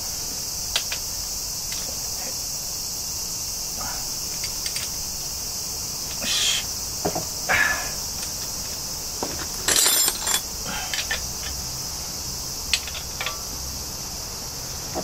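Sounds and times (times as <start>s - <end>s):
insects chirring: 0.0s - 15.0s
hand tools clinking on metal: 9.4s - 11.6s, 12.7s - 13.5s.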